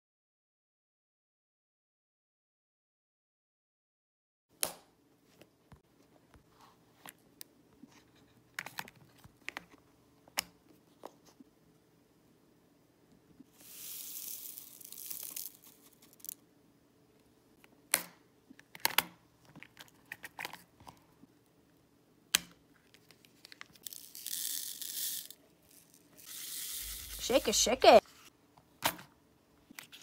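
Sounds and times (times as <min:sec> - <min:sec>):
plastic beads sliding hiss: 0:13.5 - 0:16.4, 0:23.8 - 0:28.0.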